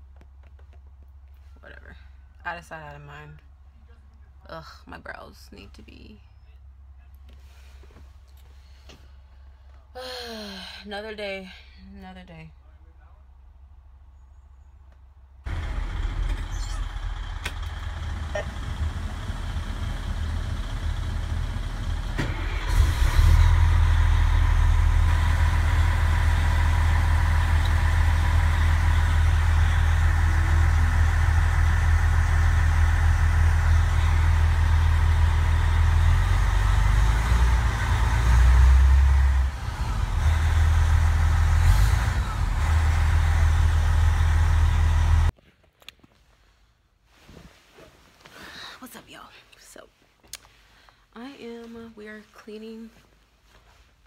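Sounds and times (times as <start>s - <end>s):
diesel engine rumbling: 15.2s - 45.4s.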